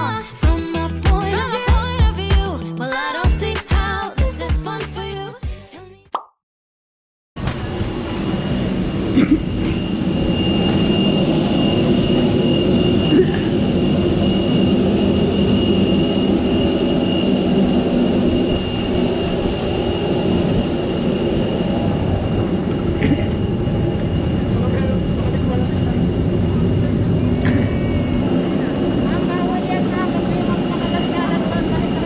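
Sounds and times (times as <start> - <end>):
high steady whine: 7.4 - 32.0.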